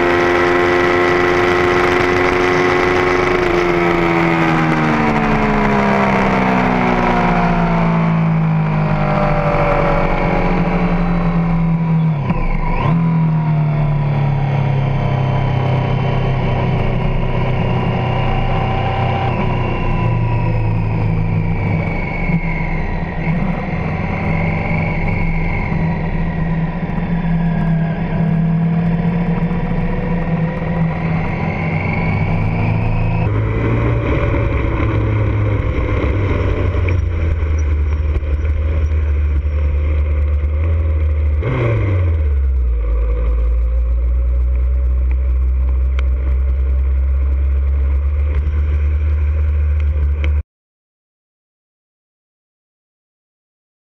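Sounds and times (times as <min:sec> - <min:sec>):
wind noise: 0:00.0 - 0:13.0, 0:13.8 - 0:50.4
motorcycle engine at speed: 0:00.0 - 0:50.4
sportbike engine rolling slowly: 0:33.4 - 0:41.4, 0:42.4 - 0:50.4.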